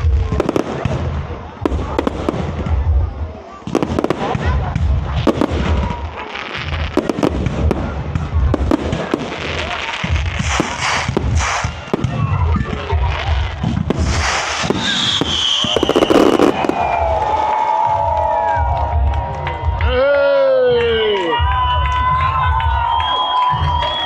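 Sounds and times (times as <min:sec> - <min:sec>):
fireworks booming: 0:00.0 - 0:18.7
crackling firework stars: 0:00.0 - 0:19.7.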